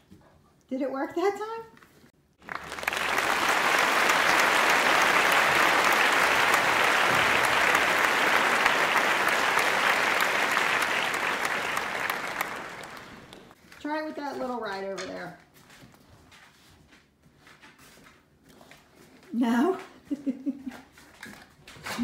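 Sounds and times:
crowd applause: 2.4 - 13.6.

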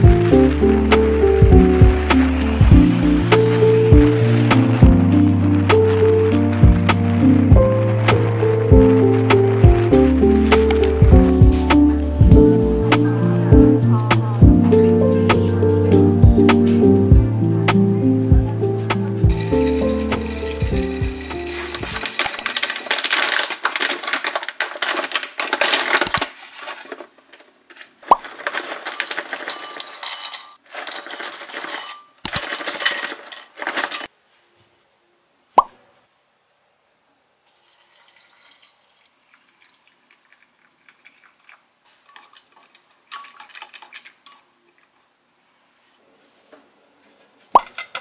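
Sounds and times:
dish clinking: 19.2 - 23.5, 28.6 - 34.1, 47.6 - 48.0
faint handling sounds: 19.3 - 34.8
water splashing into a bowl: 37.5 - 45.0.

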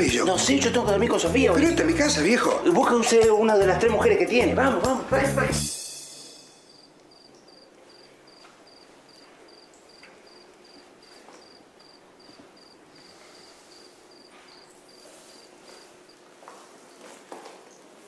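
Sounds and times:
faint hiss: 5.5 - 11.3, 12.0 - 16.1
cricket chirping: 5.7 - 16.3.

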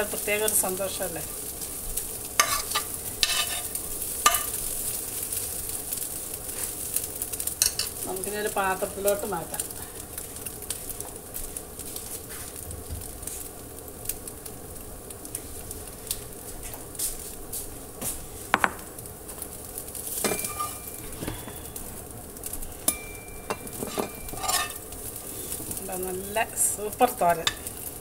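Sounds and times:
food sizzling in a frying pan: 0.0 - 28.0
metal spoon clinking glass bowl: 20.2 - 21.0, 22.8 - 24.8.

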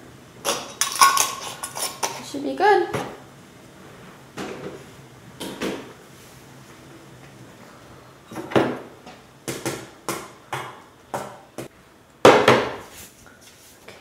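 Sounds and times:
metal dishes and utensils clinking: 0.4 - 2.3.

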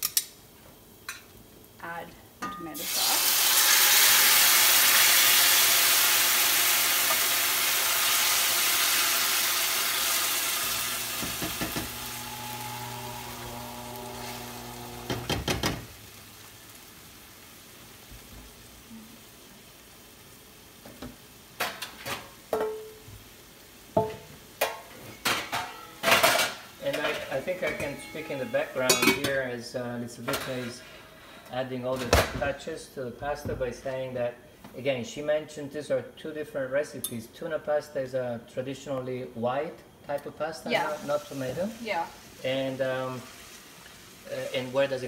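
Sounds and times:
tomatoes sizzling in oil: 0.8 - 37.8, 40.0 - 45.0
spatula scraping and tapping pan: 24.6 - 29.4.

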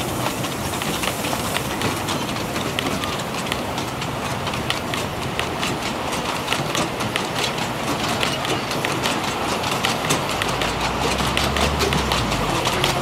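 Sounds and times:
train wheels clicking over rail joints: 0.0 - 13.0
steady rumble: 3.6 - 13.0.

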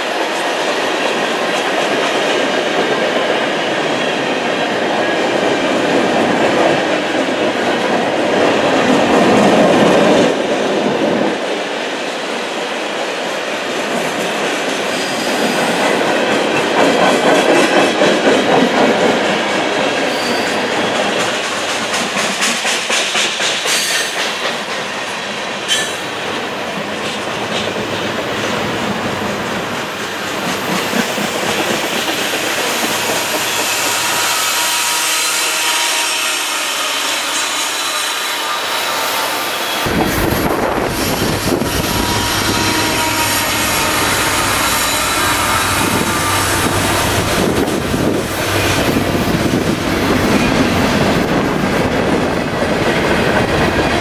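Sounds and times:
train wheels on rails: 0.0 - 54.0
wheels clacking over rail joints: 13.8 - 25.1
high wheel squeals: 20.1 - 20.7.

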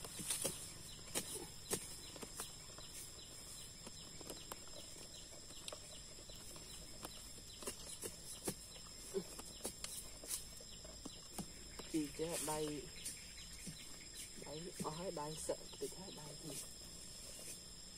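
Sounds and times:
digging tool chopping into soil: 0.0 - 2.5
dirt and leaves scraped: 0.0 - 17.9.

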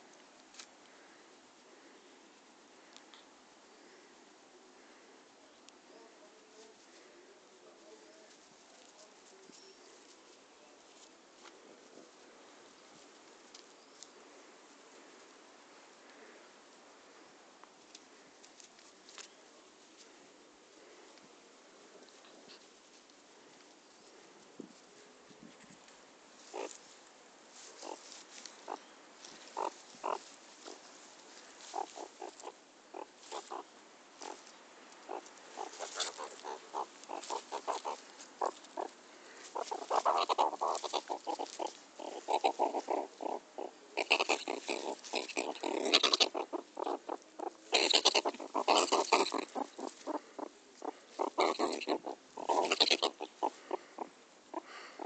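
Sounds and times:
meerkat calling: 26.4 - 26.8, 27.6 - 55.0.

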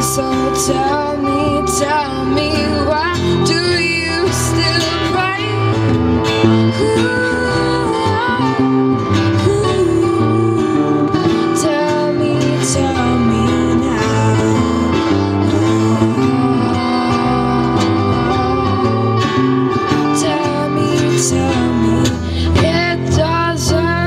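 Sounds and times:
acoustic guitar: 0.0 - 24.0
electric bass: 0.0 - 24.0
electric guitar: 0.0 - 24.0.

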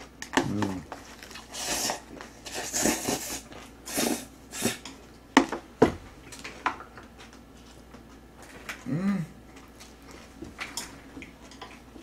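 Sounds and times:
noodles slurped: 0.6 - 4.8.

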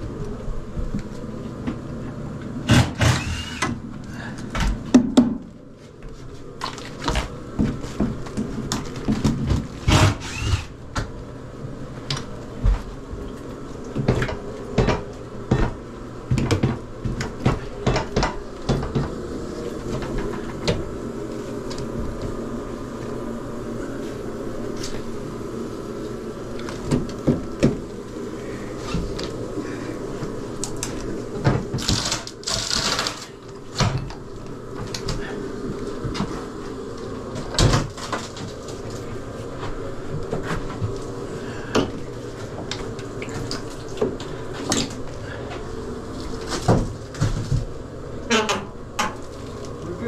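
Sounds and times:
low steady hum: 0.0 - 50.0
tools knocking and scraping wood: 13.9 - 19.2.

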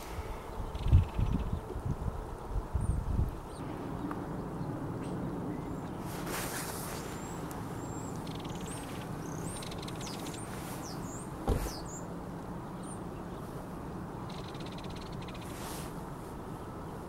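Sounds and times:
birds chirping: 0.0 - 15.8
thump: 11.4 - 11.8.

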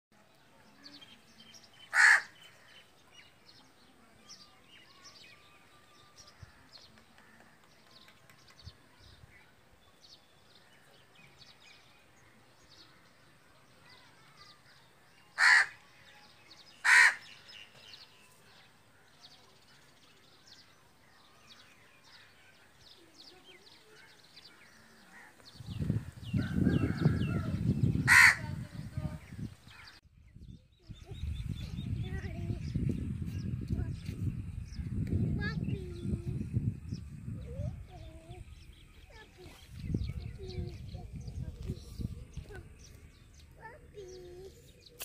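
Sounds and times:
small birds chirping: 0.2 - 45.0
crow cawing: 1.9 - 2.4, 15.4 - 15.8, 16.8 - 17.4, 28.1 - 28.4.

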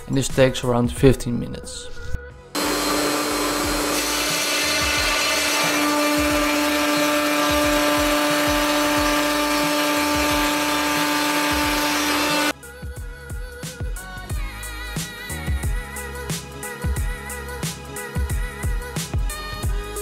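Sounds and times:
router cutting noise: 2.6 - 12.5
spindle whine: 2.6 - 12.5.

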